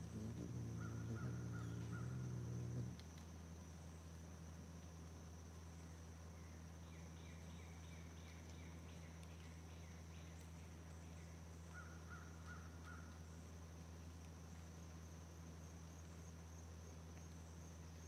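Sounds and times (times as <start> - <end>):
high insect drone: 0.0 - 18.0
low steady hum: 0.0 - 18.0
distant birds calling: 0.1 - 2.7.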